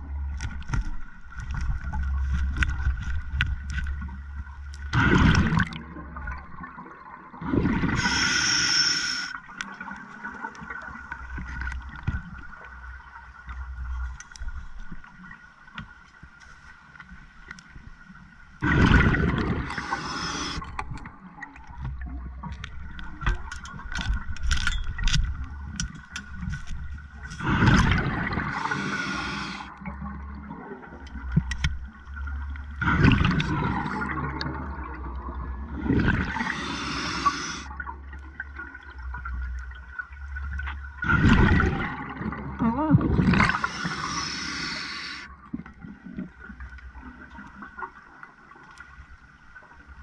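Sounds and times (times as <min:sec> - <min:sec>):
diver breathing through regulator: 0:07.9 - 0:09.3, 0:19.6 - 0:20.8, 0:28.5 - 0:29.7, 0:36.3 - 0:37.7, 0:43.4 - 0:45.3.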